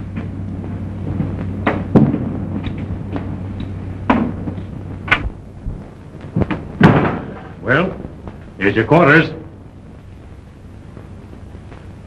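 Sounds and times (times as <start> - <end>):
film soundtrack hum and hiss: 0.0 - 12.0
sharp knocks: 6.4 - 7.5.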